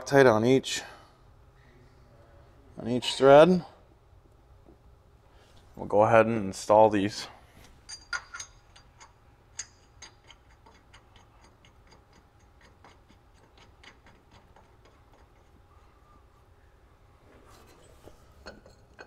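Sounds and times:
metallic ticking of lug nuts: 7.8s - 15.6s.

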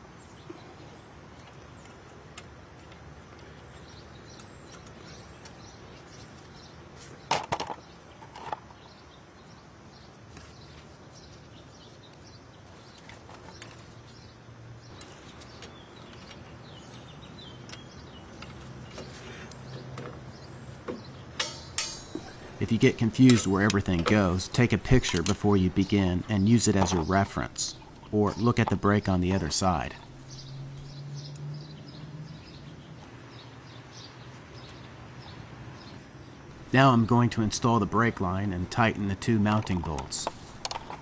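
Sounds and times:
sharp metallic clicks: 21.4s - 30.9s, 36.7s - 41.0s.

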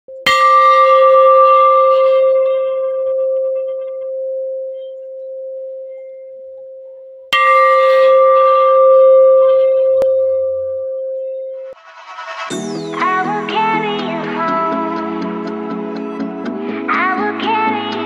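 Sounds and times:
metal gong struck and ringing: 7.4s - 13.8s.

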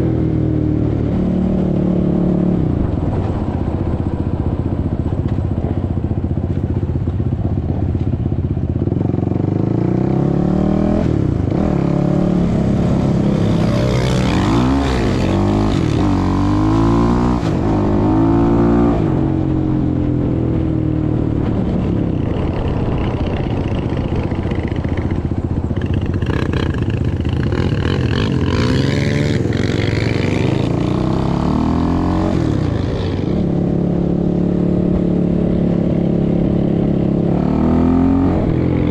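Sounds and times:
quad bike engine revving: 8.8s - 19.4s, 21.6s - 38.9s.

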